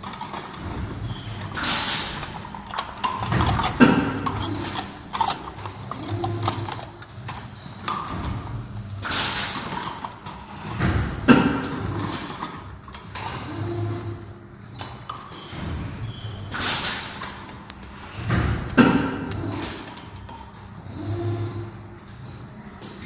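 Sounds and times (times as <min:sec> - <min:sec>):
plastic cups crinkling: 0:00.0 - 0:08.4.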